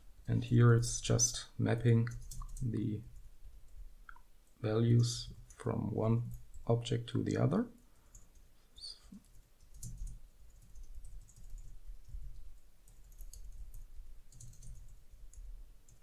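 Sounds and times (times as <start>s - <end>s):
computer keyboard typing: 2.1s - 3.3s, 8.0s - 8.5s, 9.2s - 16.0s.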